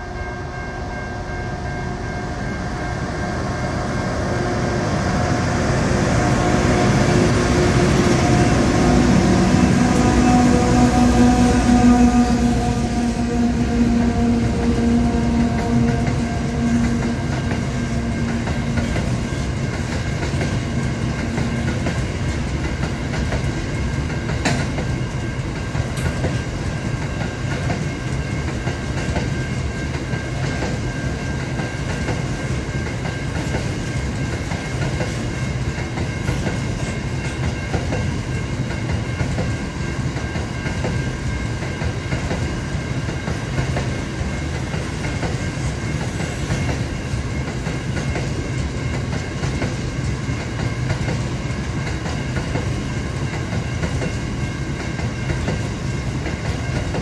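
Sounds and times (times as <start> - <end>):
diesel locomotive drone: 0.0 - 57.0
train wagons rumbling past: 0.0 - 57.0.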